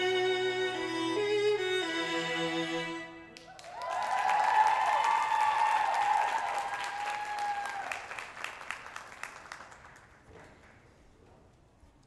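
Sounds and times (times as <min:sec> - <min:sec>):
audience applauding: 0:03.4 - 0:10.2.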